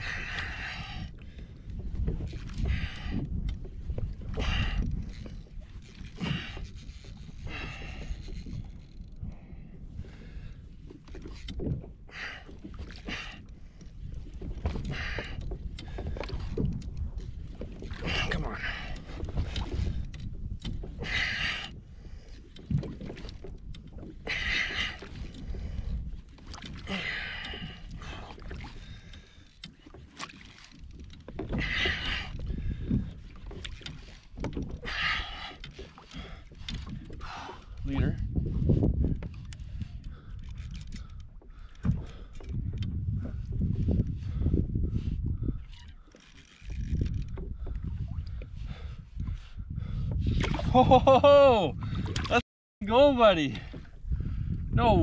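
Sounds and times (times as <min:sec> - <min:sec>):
water slapping kayak hull: 0:00.0 - 0:55.0
wind rumble on microphone: 0:00.0 - 0:55.0
fishing reel cranking: 0:45.8 - 0:47.4.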